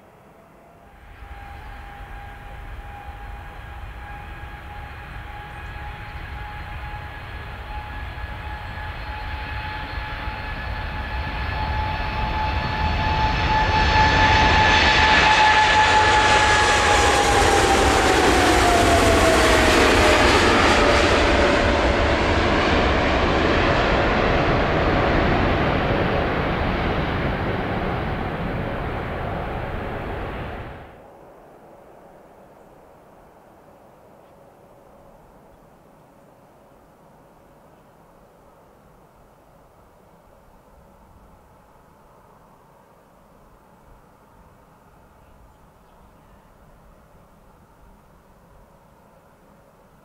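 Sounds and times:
jet engine roar: 0:00.0 - 0:32.2
jet engine whine: 0:00.0 - 0:50.0.

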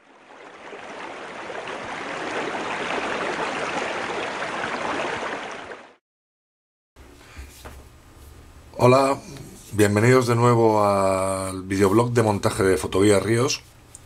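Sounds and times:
stream water rushing: 0:00.0 - 0:06.0.

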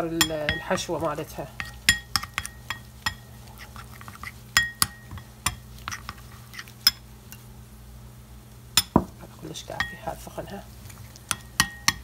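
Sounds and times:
spoon clinking in ceramic bowl: 0:01.6 - 0:03.9, 0:04.6 - 0:07.0, 0:11.3 - 0:12.0.

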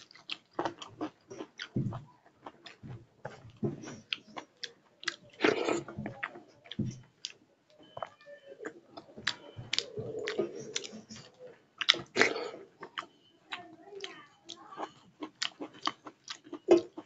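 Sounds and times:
wet chewing and smacking: 0:00.0 - 0:17.0.

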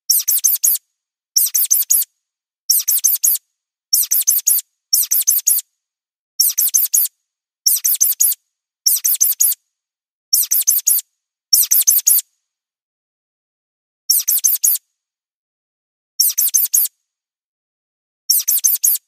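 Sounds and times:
mouse squeaks: 0:00.1 - 0:00.8, 0:01.4 - 0:02.1, 0:02.7 - 0:05.6, 0:06.4 - 0:07.1, 0:07.7 - 0:09.6, 0:10.3 - 0:12.2, 0:14.1 - 0:14.8, 0:16.2 - 0:16.9, 0:18.3 - 0:19.0.

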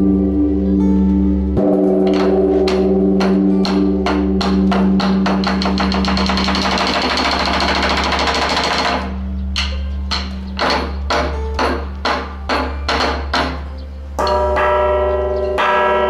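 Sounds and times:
bronze bell ringing low hum: 0:00.0 - 0:06.4, 0:09.0 - 0:10.6, 0:14.2 - 0:16.0
sticks beating large temple drum: 0:01.6 - 0:13.7.

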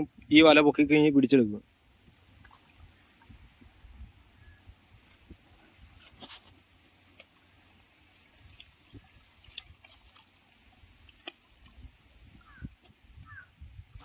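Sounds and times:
water dripping off a net: 0:06.0 - 0:13.4.

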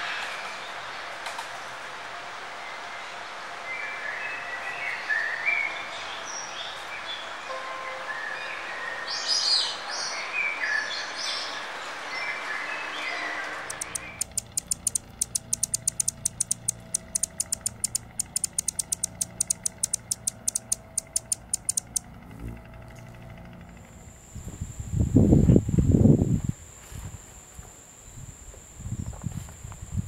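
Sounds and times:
background hiss: 0:13.7 - 0:22.0
hummingbird high ticks: 0:13.7 - 0:22.0.

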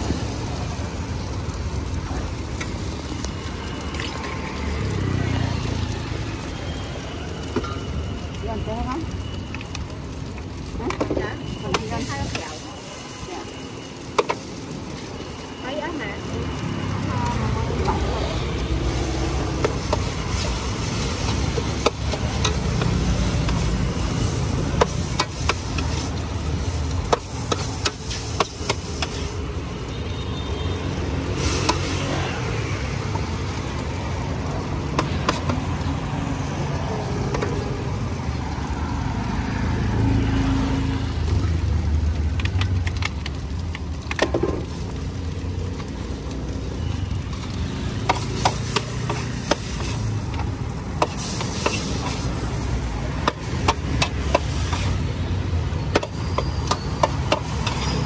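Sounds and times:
metal spatula scraping wok: 0:51.0 - 0:52.6, 0:55.9 - 0:58.0.

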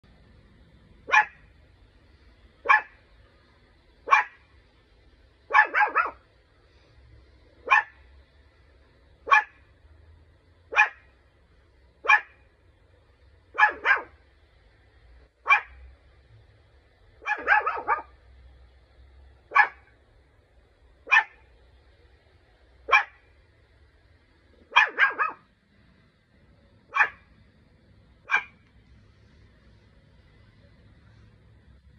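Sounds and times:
puppy barking: 0:01.1 - 0:01.5, 0:02.6 - 0:03.0, 0:04.0 - 0:04.5, 0:05.5 - 0:06.2, 0:07.6 - 0:08.0, 0:09.2 - 0:09.6, 0:10.7 - 0:11.1, 0:12.0 - 0:12.4, 0:13.5 - 0:14.2, 0:15.4 - 0:15.8, 0:17.2 - 0:18.2, 0:19.5 - 0:19.9, 0:21.0 - 0:21.5, 0:22.9 - 0:23.3, 0:24.7 - 0:25.5, 0:26.9 - 0:27.3, 0:28.2 - 0:28.6.

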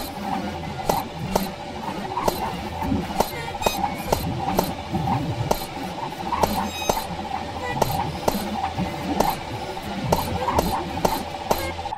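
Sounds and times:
sharp electronic clicks: 0:02.2 - 0:02.6, 0:03.2 - 0:04.8, 0:05.5 - 0:07.2, 0:10.1 - 0:11.9.

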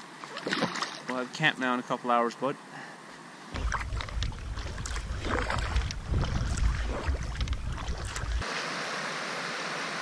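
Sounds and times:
paddle strokes splashing: 0:00.2 - 0:01.1, 0:03.6 - 0:08.6
wind rumbling on microphone: 0:03.5 - 0:08.4
river water rushing: 0:03.5 - 0:10.0.

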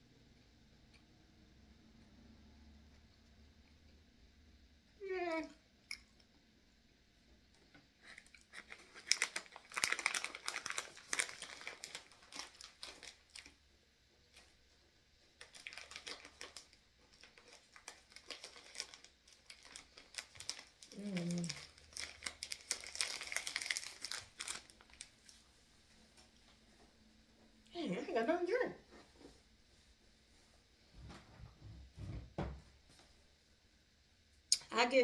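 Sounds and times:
snack wrapper crinkling: 0:08.0 - 0:13.6, 0:15.2 - 0:25.4
person humming: 0:21.0 - 0:21.6.

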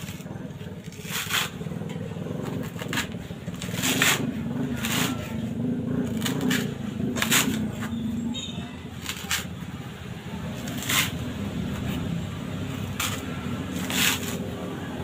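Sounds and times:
knife chopping coconut husk: 0:00.0 - 0:08.2, 0:08.8 - 0:15.0.

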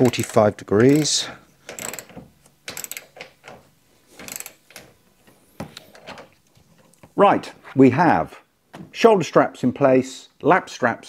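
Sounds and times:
ratchet wrench clicking: 0:00.0 - 0:03.3, 0:04.2 - 0:04.8.

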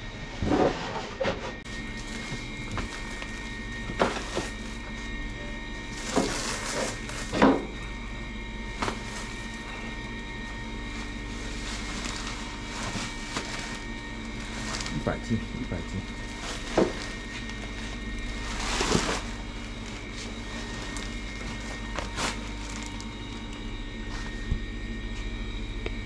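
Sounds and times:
steady hum: 0:00.0 - 0:26.0
sacks and crates thumping: 0:05.9 - 0:07.8, 0:08.7 - 0:09.7, 0:11.0 - 0:15.2, 0:16.2 - 0:23.1.

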